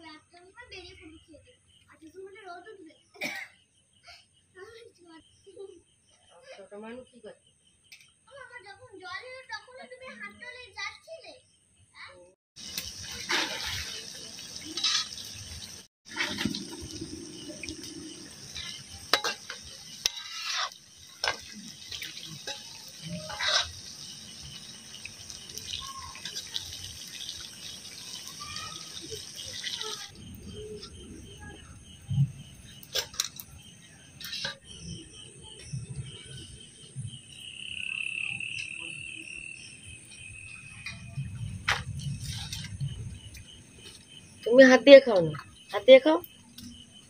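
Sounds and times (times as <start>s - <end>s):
water hissing: 12.6s - 30.8s.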